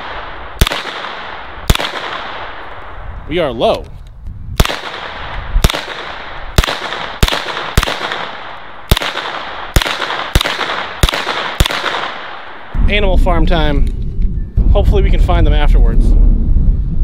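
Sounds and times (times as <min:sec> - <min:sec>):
gunshots with echo: 0:00.0 - 0:02.8, 0:04.6 - 0:12.8.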